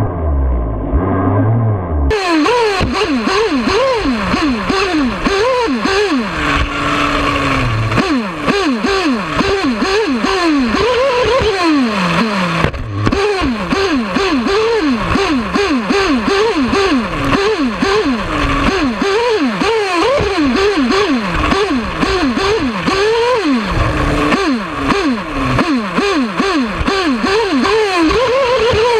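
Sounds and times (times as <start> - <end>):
rc buggy engine revving: 0.0 - 28.9.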